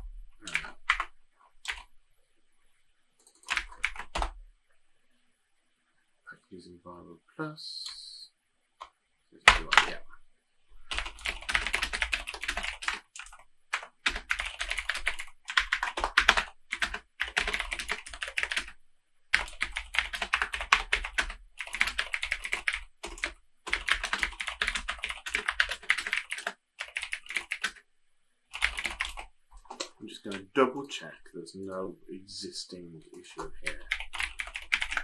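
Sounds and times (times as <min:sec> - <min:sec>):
typing on computer keyboard: 0:00.4 - 0:01.9, 0:03.2 - 0:04.4, 0:09.5 - 0:10.0, 0:10.9 - 0:27.8, 0:28.5 - 0:30.4, 0:33.2 - 0:35.0.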